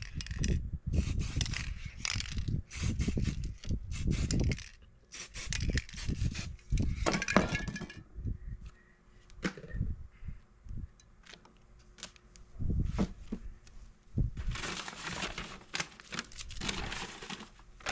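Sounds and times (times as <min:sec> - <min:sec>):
spray can hissing: 0:01.0 - 0:01.8, 0:02.7 - 0:06.6.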